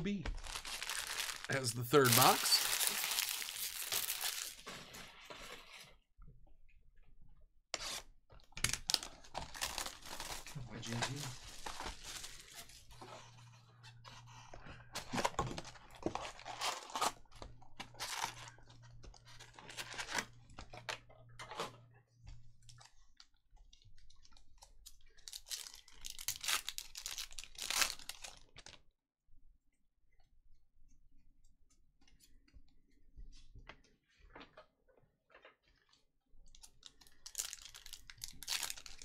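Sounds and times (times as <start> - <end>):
packaging tearing and crinkling: 0.3 - 4.9, 8.6 - 12.8, 15.0 - 17.2, 25.3 - 28.4, 36.9 - 39.0.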